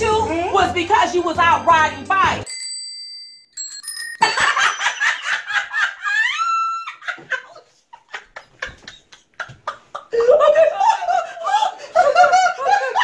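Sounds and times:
bicycle bell ringing: 2.4s - 5.6s
women laughing loudly: 4.2s - 13.0s.

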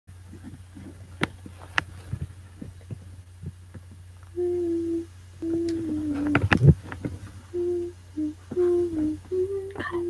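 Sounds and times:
low electrical hum: 0.1s - 10.0s
person humming: 4.3s - 6.8s, 7.5s - 10.0s.

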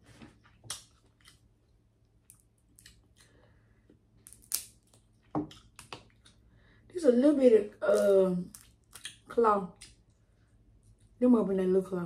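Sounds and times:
chewing: 0.4s - 3.4s
shellfish shell cracking: 4.2s - 6.3s, 8.4s - 10.0s.

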